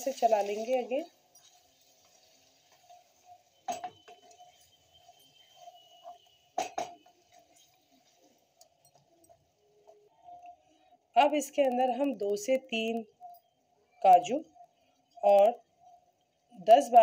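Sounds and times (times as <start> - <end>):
spatula scraping pan: 0.0 - 8.5.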